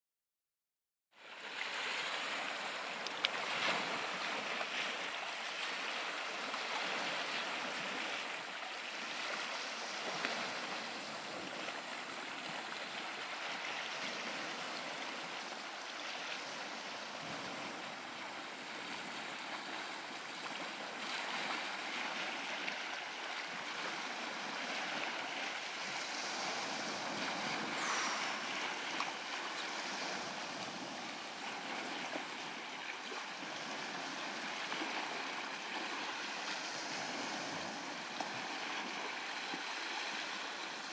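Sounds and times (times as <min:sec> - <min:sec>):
short rising whistle: 0:27.6 - 0:29.2.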